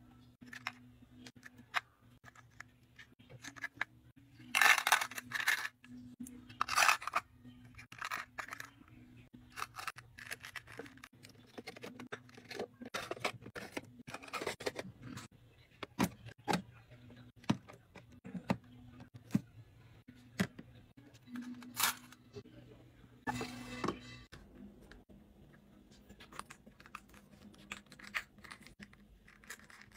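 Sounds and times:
plastic items clicking and rattling: 0.4 - 8.9, 9.5 - 16.7, 26.2 - 29.9.

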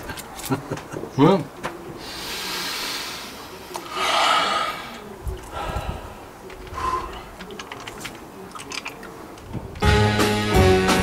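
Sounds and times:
man breathing deeply: 2.0 - 7.4.

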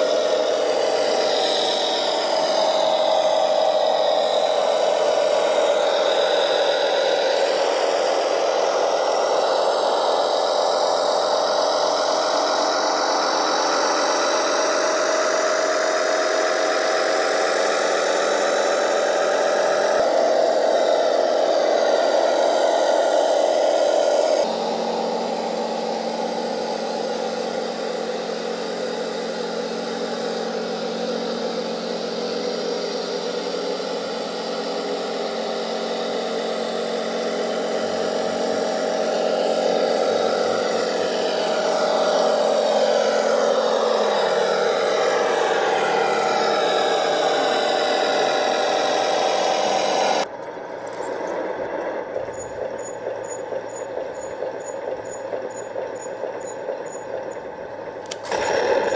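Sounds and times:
model car motor whirring: 0.0 - 58.9
faint regular ticks: 52.2 - 57.4.

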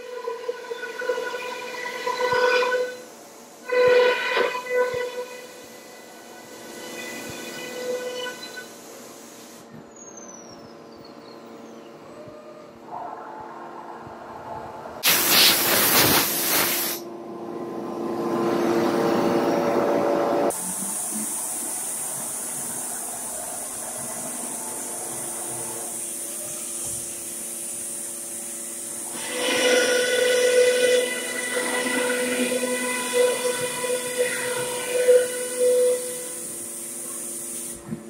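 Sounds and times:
loud hiss of air: 15.0 - 17.1, 20.5 - 38.0
high-pitched whine: 17.1 - 38.0
cnc router machine tones: 17.5 - 38.0.

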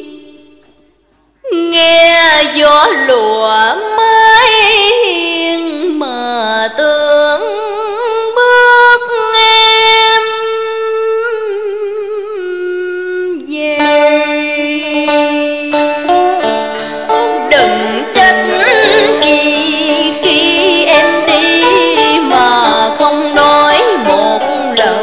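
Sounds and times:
woman singing with vibrato: 0.0 - 0.6, 1.4 - 25.0
traditional ensemble playing: 16.4 - 21.7.

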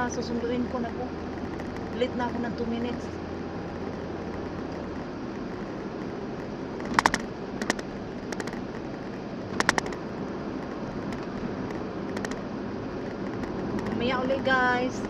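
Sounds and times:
car cabin road noise: 0.0 - 15.0
rapid sharp clicks: 3.8 - 10.0, 10.6 - 12.4, 13.0 - 14.1.

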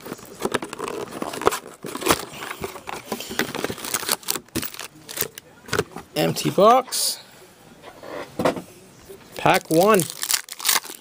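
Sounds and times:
foil wrappers rustling: 0.0 - 5.4, 9.4 - 11.0.

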